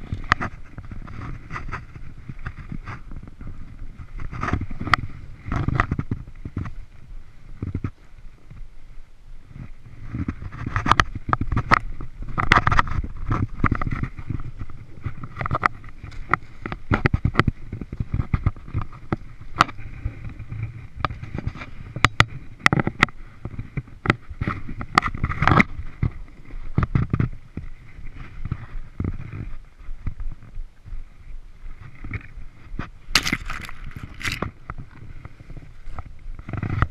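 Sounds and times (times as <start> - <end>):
camera rustling and knocking: 0.0 - 6.8, 10.0 - 30.2, 31.8 - 36.9
footsteps crunching in snow: 9.4 - 36.9.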